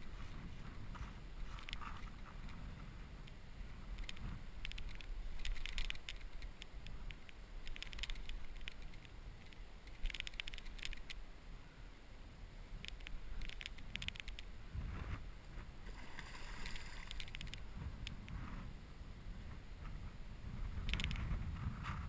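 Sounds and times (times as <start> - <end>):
fishing reel clicking: 4.0 - 6.6, 7.2 - 11.2, 16.6 - 17.6, 20.9 - 21.2.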